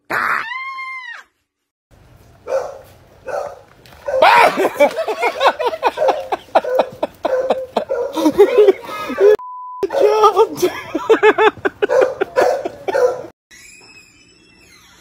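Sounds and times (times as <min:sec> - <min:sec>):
dog barking rapidly: 0:02.4 - 0:04.6, 0:05.8 - 0:08.6, 0:11.8 - 0:13.3
person shrieking: 0:04.2 - 0:04.6.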